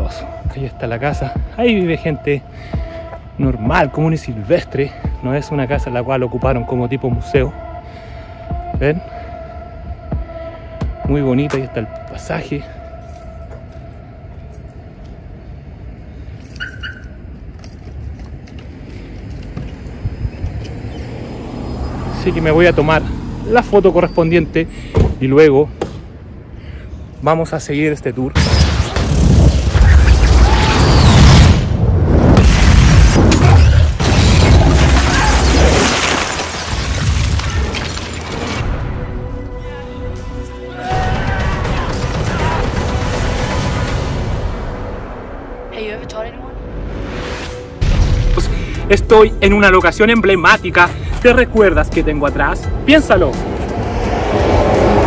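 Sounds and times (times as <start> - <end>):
film score music: 0.0 - 21.0, 38.4 - 55.0
low street rumble: 5.8 - 46.9
explosion boom: 28.4 - 36.0, 47.1 - 49.1
shattering debris: 32.4 - 38.8.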